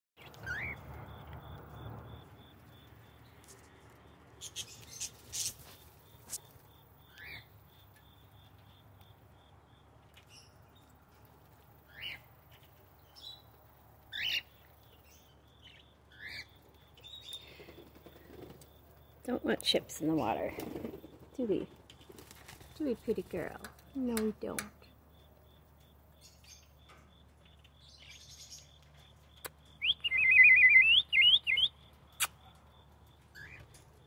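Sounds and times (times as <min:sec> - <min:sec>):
small parrots chirping: 0:00.2 - 0:01.5, 0:04.4 - 0:07.5, 0:14.1 - 0:17.4, 0:29.4 - 0:32.4.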